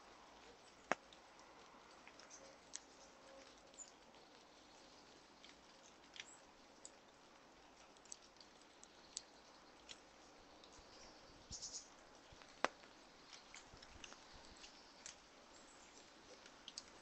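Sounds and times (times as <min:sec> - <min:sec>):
quiet background hiss: 0:00.0 - 0:17.0
squirrel nibbling seeds clicks: 0:00.4 - 0:04.8, 0:05.4 - 0:11.1, 0:16.2 - 0:17.0.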